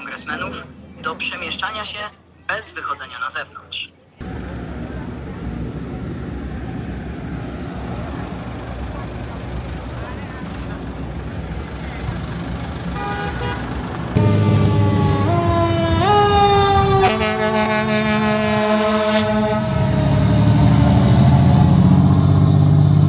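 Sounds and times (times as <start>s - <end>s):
traffic: 0.0s - 23.0s
heavy vehicle engine rumble: 4.2s - 23.0s
fire truck siren: 14.2s - 22.6s.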